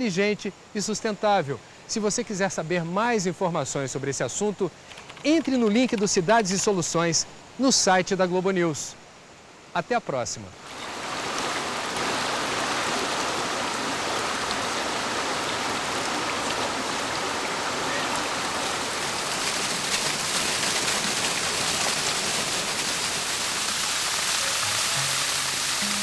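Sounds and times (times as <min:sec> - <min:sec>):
stream rushing over stones: 0:10.5 - 0:26.0.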